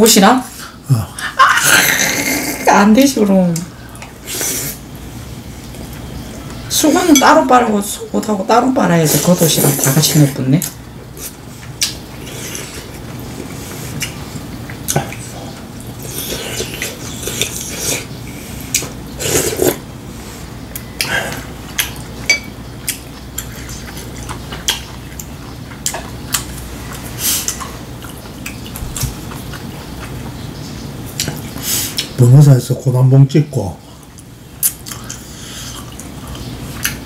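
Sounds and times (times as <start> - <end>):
mouth sounds of eating: 9.1 - 19.9
utensils clinking on bowls: 22.2 - 22.6.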